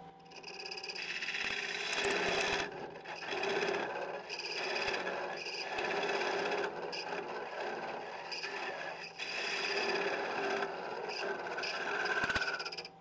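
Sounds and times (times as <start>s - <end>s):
lathe tool scraping wood: 0.9s - 12.9s.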